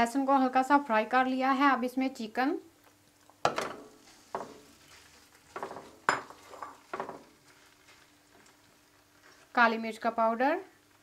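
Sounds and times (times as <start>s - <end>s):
butter sizzling: 2.8s - 11.0s
bowl and spatula knocking a pan: 3.4s - 4.6s, 5.5s - 7.3s.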